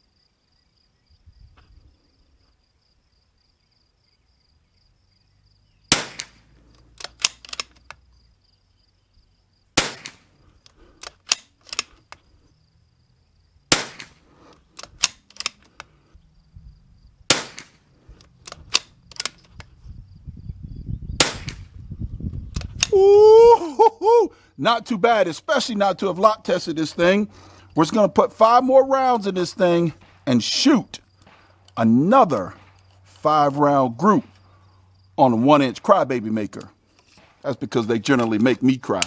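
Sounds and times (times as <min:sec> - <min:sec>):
insect chirr: 0:00.0 - 0:39.0
rifle shots: 0:05.9 - 0:07.8, 0:09.8 - 0:10.3, 0:13.7 - 0:15.6, 0:17.3 - 0:17.8, 0:21.2 - 0:21.7
rifle bolt clicks: 0:05.9 - 0:08.0, 0:09.8 - 0:12.2, 0:13.7 - 0:16.0, 0:17.3 - 0:19.7, 0:22.5 - 0:22.9.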